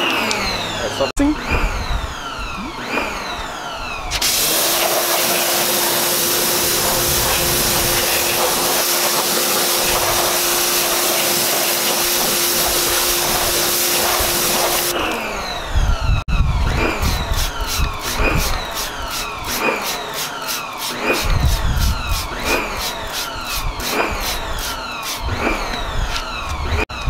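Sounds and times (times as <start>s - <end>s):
motor hum: 0.0s - 27.0s
pressure washer spray hissing: 4.1s - 15.2s, 17.4s - 25.2s.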